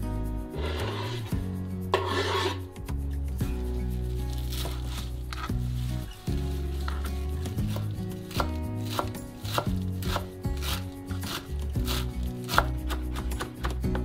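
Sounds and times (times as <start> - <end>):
soft background music: 0.0 - 14.0
knife chopping on cutting board: 6.9 - 13.8.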